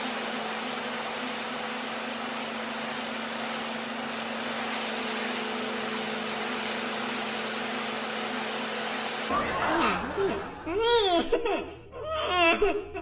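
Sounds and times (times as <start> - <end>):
pressure washer spraying: 0.0 - 9.3.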